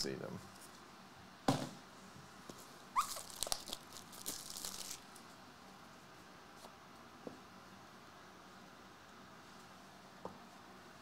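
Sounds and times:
card pack wrapper tearing: 0:03.0 - 0:05.1
wrapper crinkling: 0:03.0 - 0:05.2.

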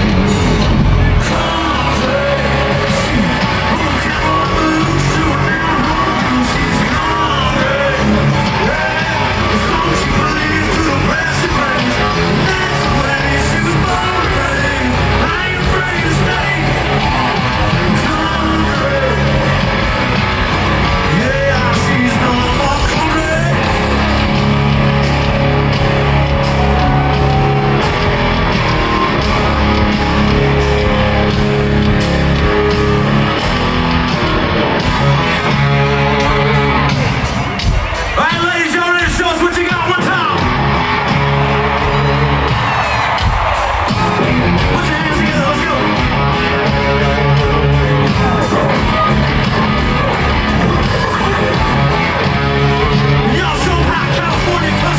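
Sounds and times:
bass: 0:00.0 - 0:54.9
drums: 0:00.0 - 0:54.9
electric guitars: 0:00.0 - 0:54.9
person singing: 0:00.2 - 0:19.7, 0:20.9 - 0:24.4.

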